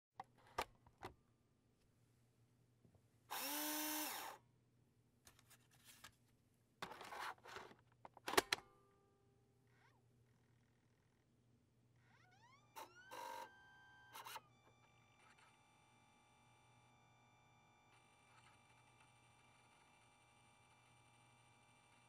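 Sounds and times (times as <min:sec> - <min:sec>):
spindle motor whining: 0:03.3 - 0:04.4
disc drive whirring and seeking: 0:12.6 - 0:22.0.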